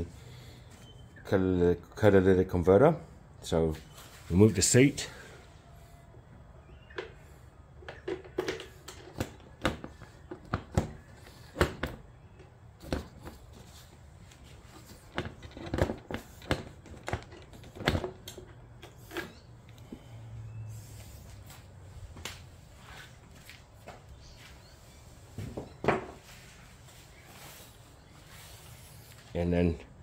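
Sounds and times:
plastic and metal parts clacking: 7.8 - 19.8.

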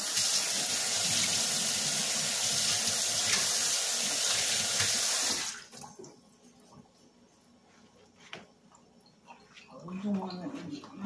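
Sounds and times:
faucet running: 0.0 - 5.9.

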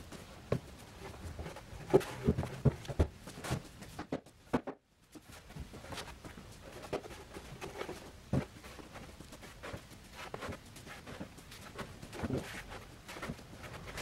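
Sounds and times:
wooden panels knocking and thudding: 0.5 - 4.9.

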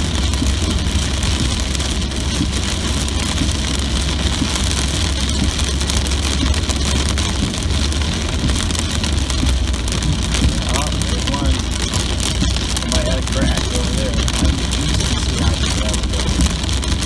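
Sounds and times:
car and tyres rumbling on wet road: 0.0 - 17.0
heavy rain on a car: 0.0 - 17.0.

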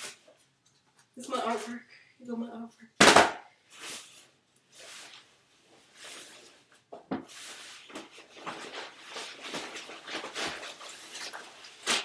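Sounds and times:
packaging rustling and tearing: 7.5 - 12.0.

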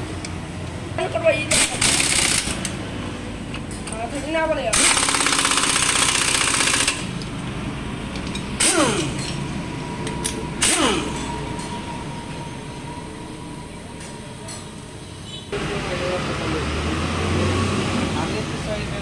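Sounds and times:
impact wrench hammering: 1.5 - 2.7, 4.7 - 7.2, 8.1 - 9.4, 10.0 - 11.3.

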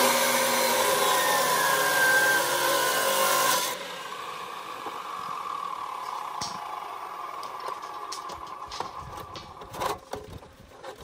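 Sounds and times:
cut-off saw grinding steel: 0.0 - 6.2
saw motor whining: 0.0 - 9.8.

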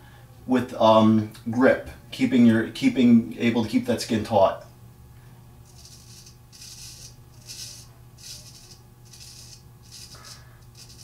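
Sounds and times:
razor scraping stubble: 5.7 - 11.0.

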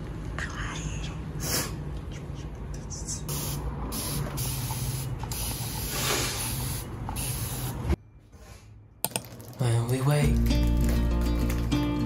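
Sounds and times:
hand mist sprayer hissing: 3.3 - 7.9.

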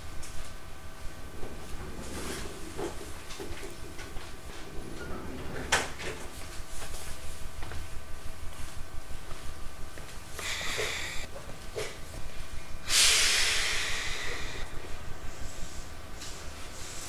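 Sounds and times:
compressed air hissing: 10.4 - 11.3, 12.8 - 14.7.

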